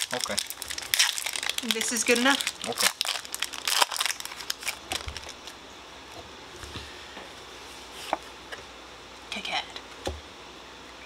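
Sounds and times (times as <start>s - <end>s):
foil wrapper crinkling: 0.0s - 5.6s.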